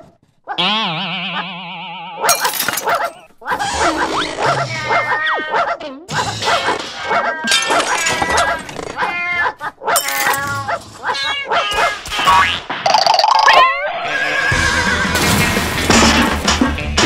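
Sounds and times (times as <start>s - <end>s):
dogs barking and yelping: 2.2s - 12.6s.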